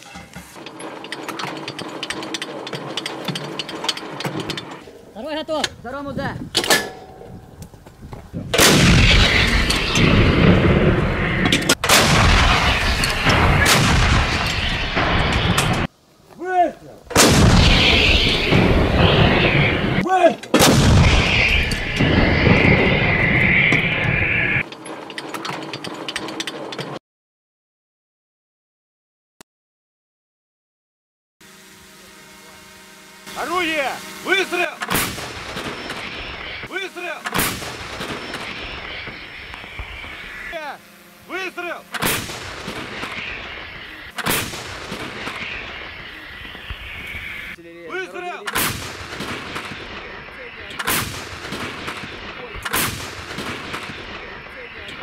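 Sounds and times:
howitzer firing blasts: 8.5 - 15.9, 17.1 - 24.6, 33.4 - 47.6, 48.5 - 55.0.

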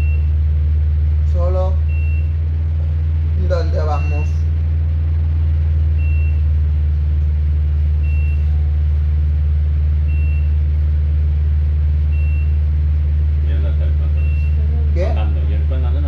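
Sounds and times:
short high beep: 8.1 - 8.5.

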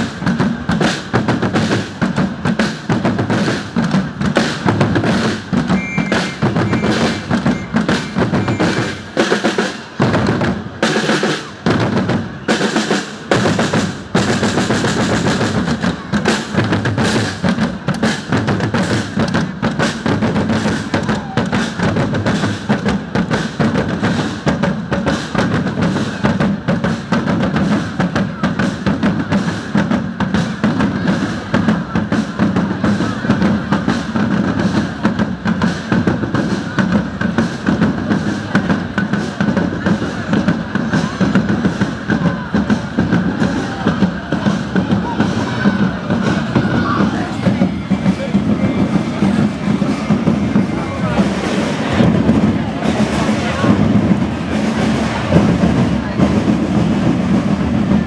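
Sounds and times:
bass drums: 0.0 - 12.4, 13.2 - 58.0
snare drums: 0.0 - 58.0.

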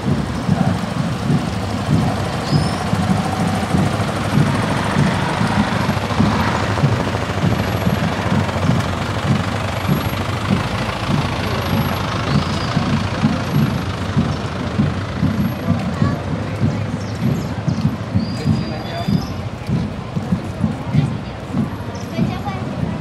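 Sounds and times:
pickup truck passing: 0.0 - 16.8
motorcycle engines rumbling: 0.0 - 23.0.

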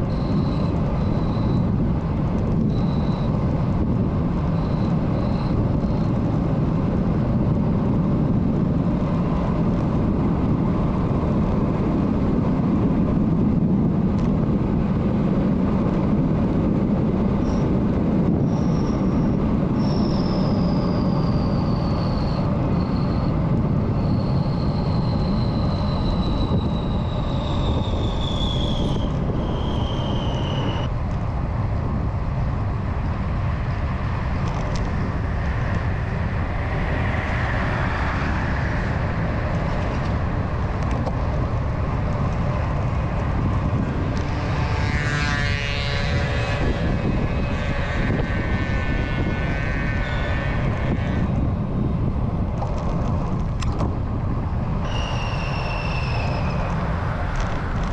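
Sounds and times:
thin high whine: 0.0 - 1.8, 45.0 - 51.4
bicycle tyre and road noise: 0.0 - 57.9
wind on microphone: 0.0 - 57.9.

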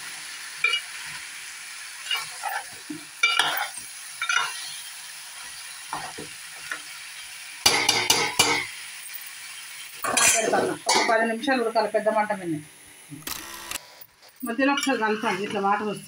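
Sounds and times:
frying sizzle: 0.0 - 16.0
spoon clinking against pot: 3.2 - 4.6.

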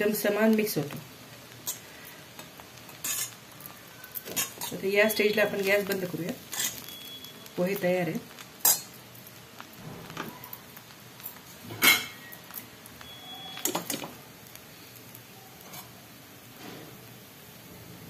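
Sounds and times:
spatula scraping and clinking on pan: 2.4 - 3.4, 4.2 - 4.8, 5.4 - 7.1, 8.6 - 9.0, 11.7 - 12.3, 15.6 - 15.9.

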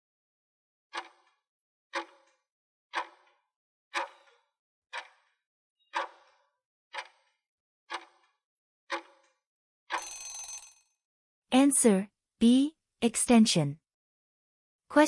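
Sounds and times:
clock ticks: 1.0 - 1.3, 2.0 - 3.3, 4.0 - 5.4, 6.0 - 6.3, 7.0 - 7.3, 7.9 - 8.3, 8.9 - 9.1.

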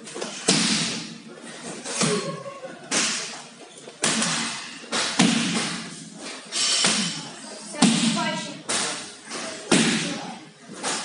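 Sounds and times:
punches and kicks hitting pads: 0.4 - 1.2, 4.0 - 6.0, 9.7 - 10.2.

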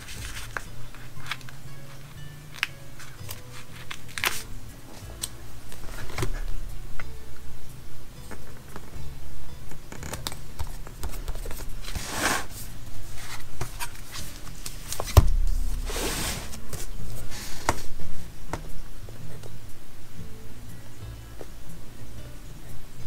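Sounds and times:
paper rustling and sliding: 0.0 - 2.0, 11.3 - 17.9.

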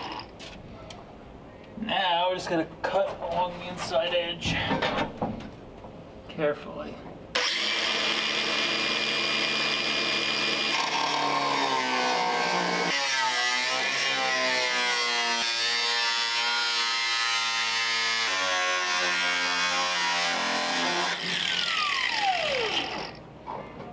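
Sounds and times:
angle grinder cutting metal: 0.0 - 0.3, 7.4 - 23.2.

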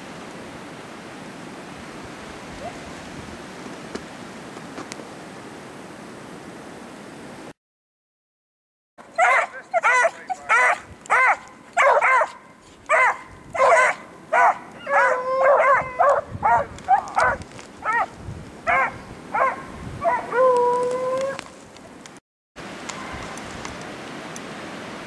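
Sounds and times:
hounds baying: 9.0 - 18.1, 18.7 - 21.4
dog howling: 9.1 - 18.1, 18.7 - 21.5.

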